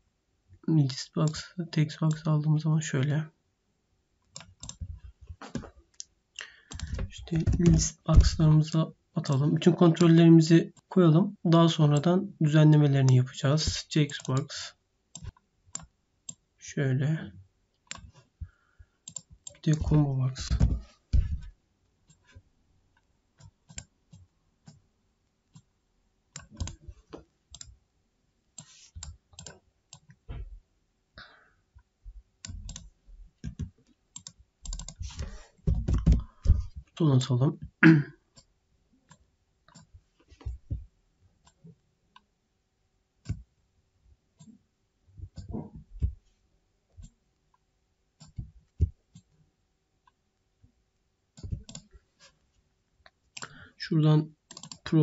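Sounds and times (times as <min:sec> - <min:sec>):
computer mouse clicks: 0:04.3 - 0:04.8, 0:05.5 - 0:08.4, 0:15.1 - 0:16.4, 0:19.0 - 0:20.0, 0:23.4 - 0:24.8, 0:26.4 - 0:26.8, 0:27.5 - 0:27.7, 0:28.6 - 0:30.2, 0:32.4 - 0:35.3, 0:51.4 - 0:51.9, 0:54.5 - 0:54.8
keyboard key presses: 0:06.7 - 0:08.5, 0:33.4 - 0:36.5
keyboard keystrokes: 0:33.4 - 0:35.2.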